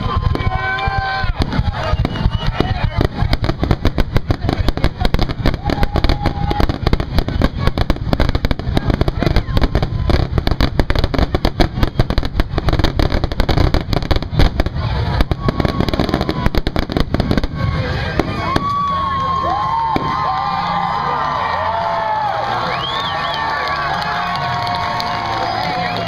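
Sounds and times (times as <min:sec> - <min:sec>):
fireworks booming and crackling: 0:00.0 - 0:20.4.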